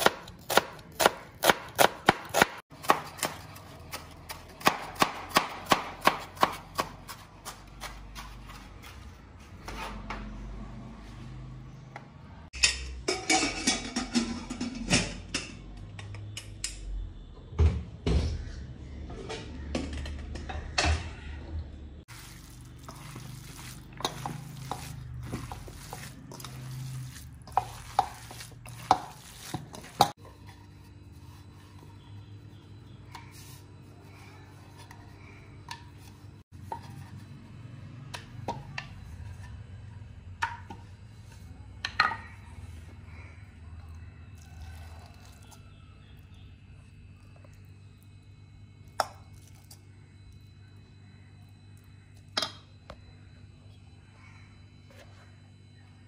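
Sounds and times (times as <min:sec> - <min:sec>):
dishes and utensils clinking: 0:12.5 - 0:16.2.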